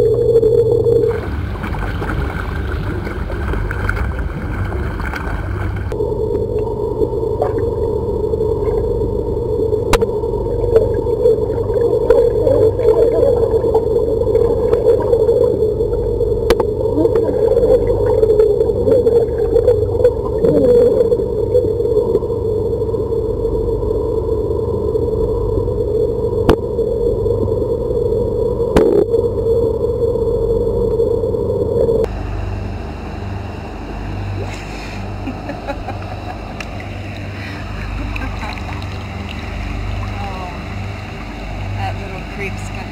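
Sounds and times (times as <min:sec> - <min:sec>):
bubbling water: 0:00.0 - 0:32.5, 0:33.2 - 0:42.9
underwater hum: 0:00.0 - 0:42.9
garbled underwater speech: 0:16.8 - 0:19.5, 0:20.3 - 0:21.2.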